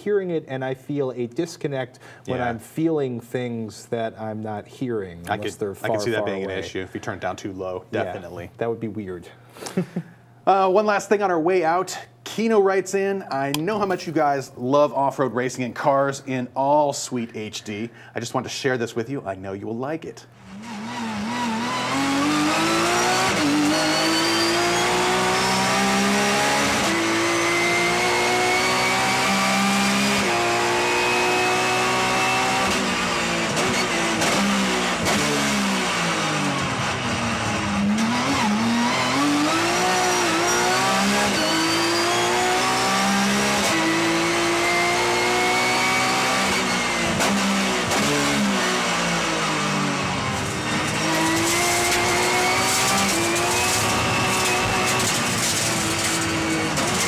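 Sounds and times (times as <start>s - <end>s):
race car engine revving: 20.4s - 57.0s.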